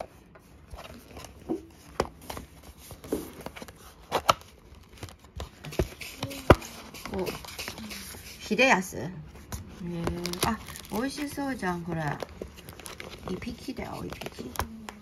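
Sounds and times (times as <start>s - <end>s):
plastic wrapping crinkling: 9.7s - 15.0s.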